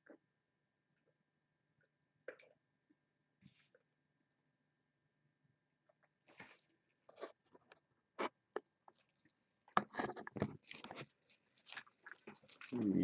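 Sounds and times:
plastic wrap crinkling: 10.4s - 13.0s.

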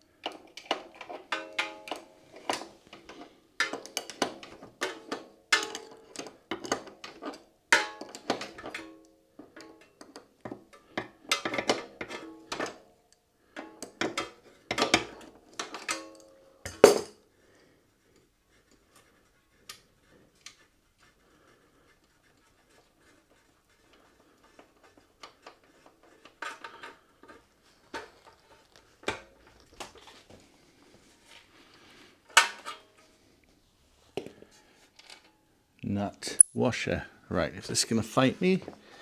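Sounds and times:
metal tools clinking: 36.3s - 36.6s.

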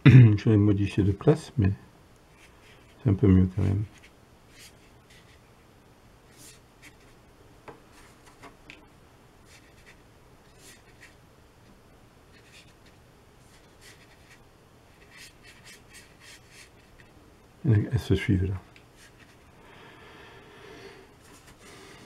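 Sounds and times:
paintbrush scratching on paper: 3.8s - 5.4s, 6.3s - 7.2s, 9.5s - 11.2s, 12.3s - 17.1s.

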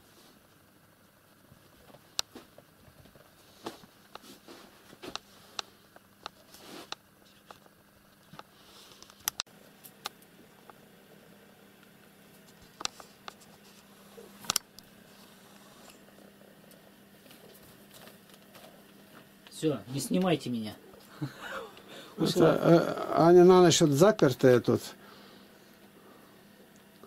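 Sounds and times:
faint hum: 0.0s - 27.0s.

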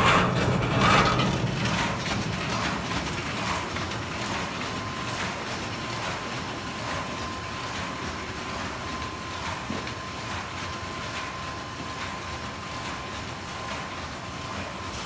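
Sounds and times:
faint regular machine stroke: 0.0s - 2.8s
machine clattering: 0.0s - 6.2s.

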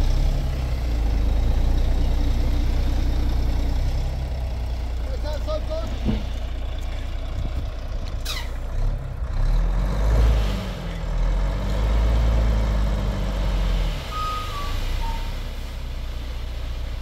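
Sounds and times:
diesel truck engine revving: 0.0s - 17.0s
sand sliding out: 13.0s - 17.0s.

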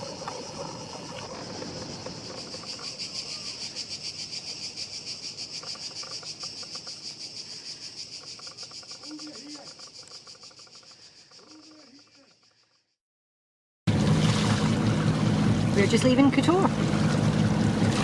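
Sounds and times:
insects buzzing: 0.0s - 13.0s.

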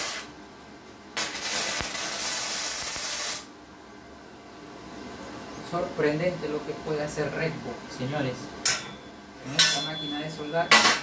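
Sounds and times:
welding arc buzzing: 0.0s - 0.4s, 1.1s - 3.6s.

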